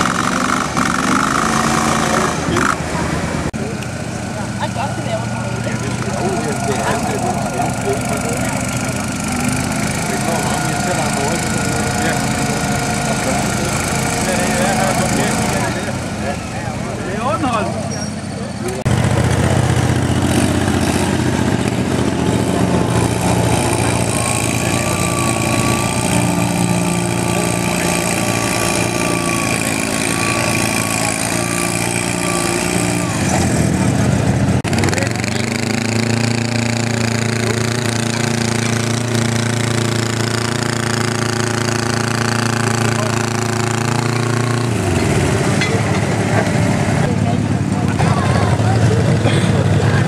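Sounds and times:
tractor engines revving: 0:00.0 - 0:50.0.

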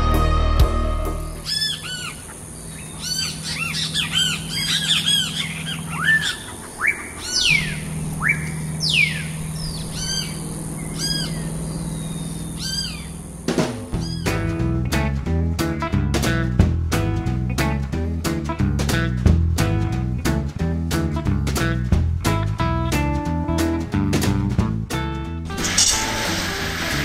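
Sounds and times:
guitar music: 0:00.0 - 0:01.5, 0:14.0 - 0:27.0
small birds chirping: 0:01.3 - 0:14.4
steady low hum: 0:01.3 - 0:16.0.

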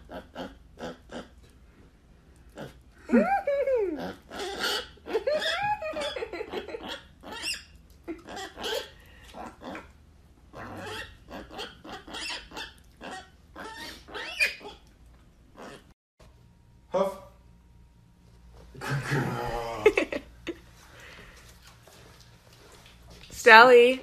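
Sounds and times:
pig wavering calls: 0:00.0 - 0:01.5, 0:02.4 - 0:15.9.

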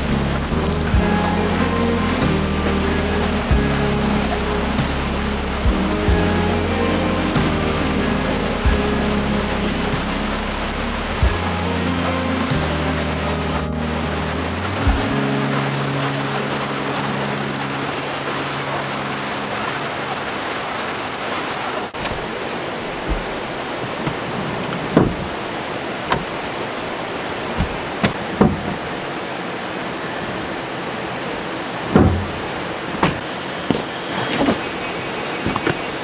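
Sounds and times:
held music notes: 0:00.0 - 0:20.4
stream flowing over rocks: 0:00.0 - 0:36.0.

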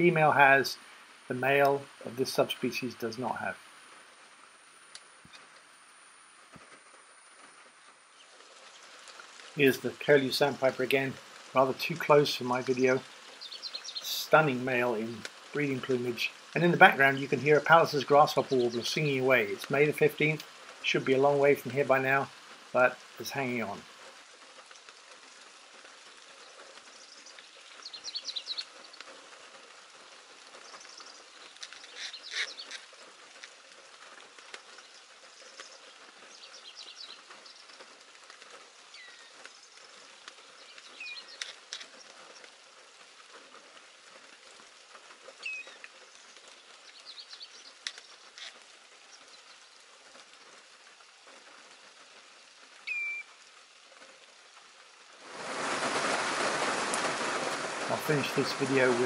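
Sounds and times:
rain hiss: 0:00.0 - 0:59.0
bird singing trilled phrases: 0:12.6 - 0:14.1, 0:27.0 - 0:28.8, 0:30.7 - 0:32.8, 0:40.6 - 0:41.6, 0:45.4 - 0:45.8, 0:52.8 - 0:53.4.

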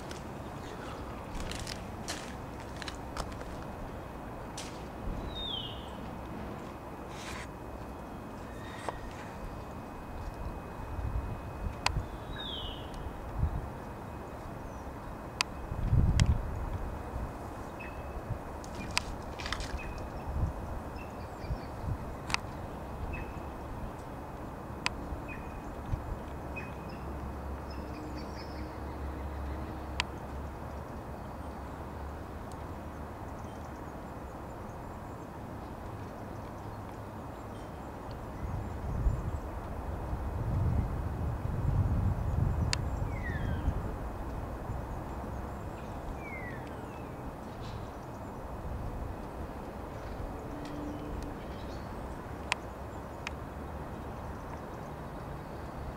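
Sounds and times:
distant traffic rumble: 0:00.0 - 0:55.9
small birds chirping: 0:05.2 - 0:06.1, 0:11.8 - 0:15.6.

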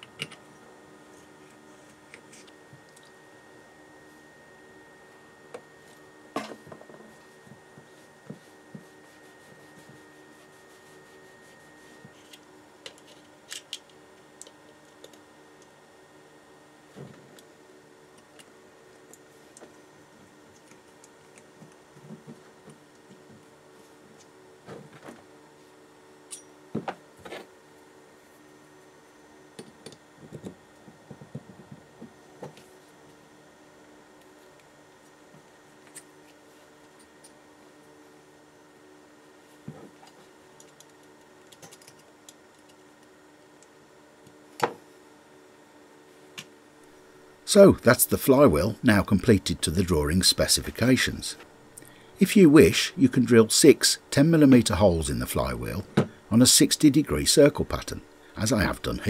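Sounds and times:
faint steady hum: 0:00.0 - 0:59.0
cloth rubbing over brass: 0:07.9 - 0:12.1.

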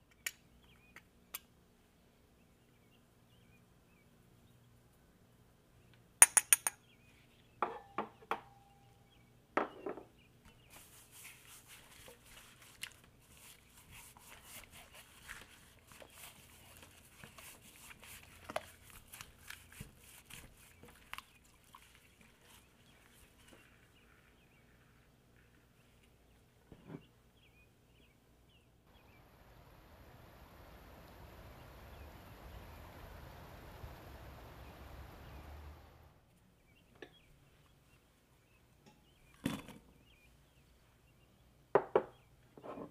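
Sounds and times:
hands squishing spices into chicken: 0:10.6 - 0:25.9.

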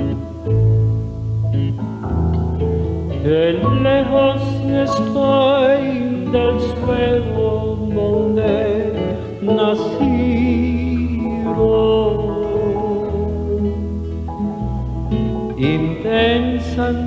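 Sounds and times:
bass and guitar: 0:00.0 - 0:17.0
vibrato singing voice: 0:03.1 - 0:14.0, 0:15.5 - 0:17.0.

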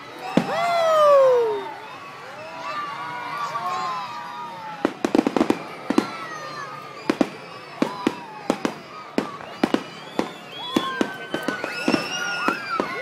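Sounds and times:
fireworks bursting with sharp bangs: 0:00.2 - 0:00.7, 0:04.8 - 0:13.0.

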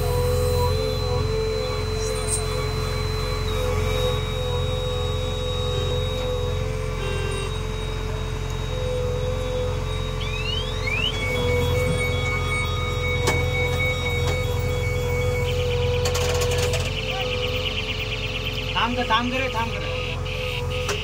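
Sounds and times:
diesel engine droning: 0:00.0 - 0:21.0
engine whine: 0:00.0 - 0:21.0.

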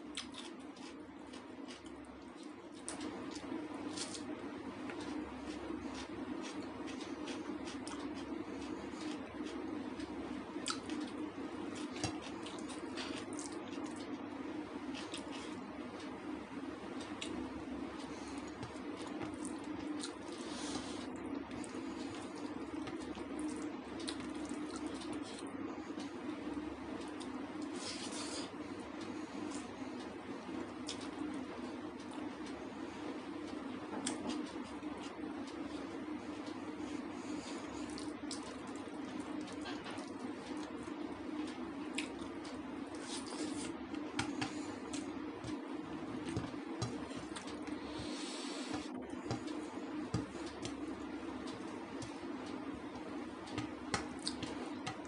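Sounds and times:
steady low hum: 0:00.0 - 0:55.0
wet chewing: 0:53.5 - 0:55.0.

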